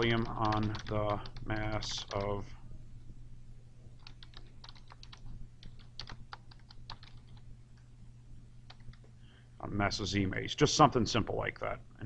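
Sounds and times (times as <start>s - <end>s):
typing on a computer keyboard: 0.0s - 2.4s, 4.0s - 7.4s, 8.7s - 9.1s
steady low hum: 0.0s - 12.0s.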